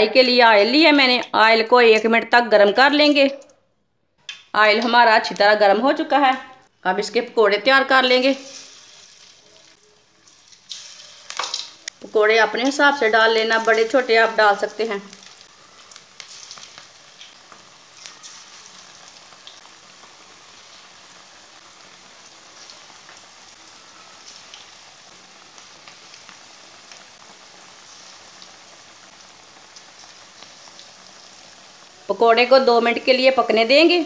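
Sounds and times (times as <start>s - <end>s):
deep-frying in hot oil sizzle: 7.8s - 34.0s
oil popping and crackling: 8.0s - 33.4s.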